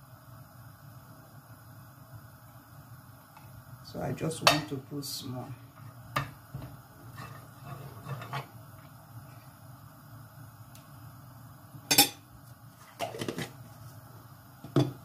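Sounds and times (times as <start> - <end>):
spoon scraping a frying pan: 7.1 - 8.6.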